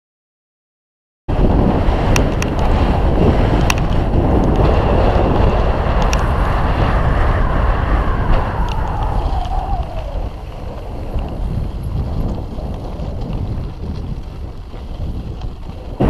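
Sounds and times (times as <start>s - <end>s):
tyres rolling on dirt trail: 1.3s - 16.0s
wind buffeting microphone: 1.3s - 16.0s
bike rattling clicks: 2.0s - 6.9s, 8.3s - 16.0s.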